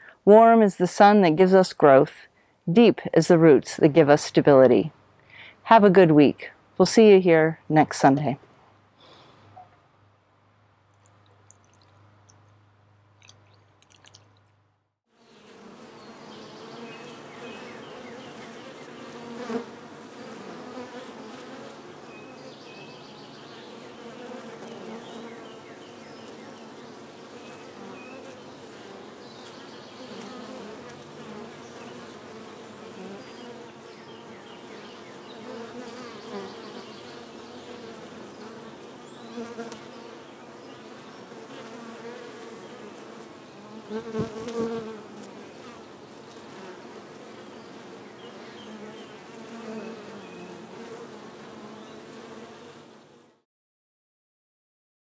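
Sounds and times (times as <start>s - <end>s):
water trickling from watering can: 10.9s - 14.6s
honeybees buzzing: 15.2s - 53.3s.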